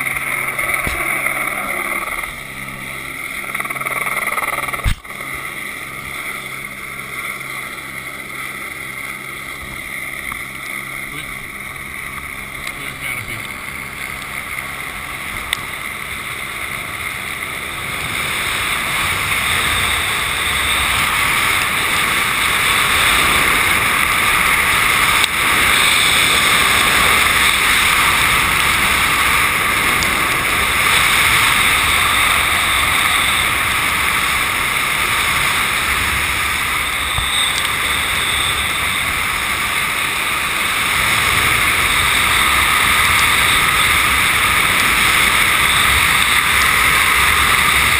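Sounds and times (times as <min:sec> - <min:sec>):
helicopter engine and rotor noise: 0:00.0 - 0:47.9
wind rushing over microphone: 0:09.6 - 0:47.9.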